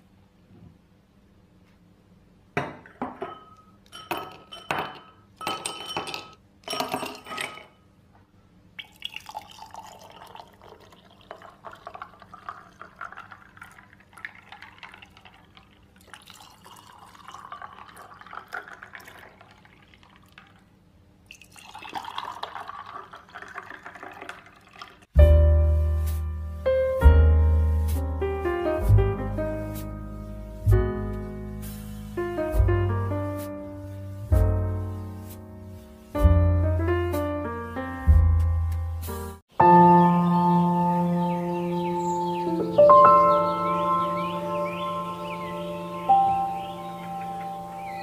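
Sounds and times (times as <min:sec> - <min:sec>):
glass clinks: 0:02.6 - 0:07.8
juice pouring over ice: 0:08.8 - 0:25.1
piano music: 0:25.2 - 0:48.0.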